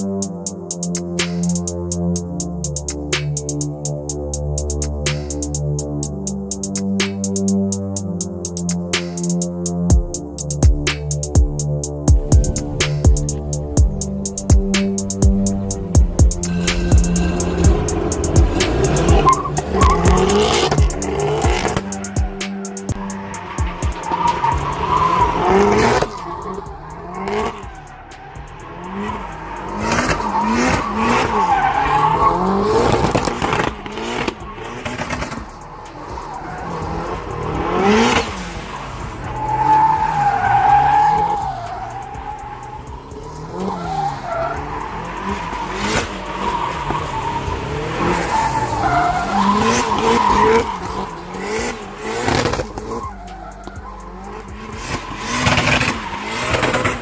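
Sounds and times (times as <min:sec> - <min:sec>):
car engine revving: 0:00.0 - 0:57.0
tyres squealing and skidding: 0:12.3 - 0:57.0.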